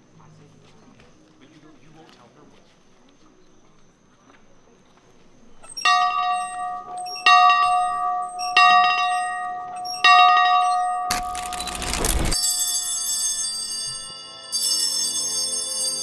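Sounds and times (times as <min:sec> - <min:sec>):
bell ringing: 0:05.8 - 0:16.0.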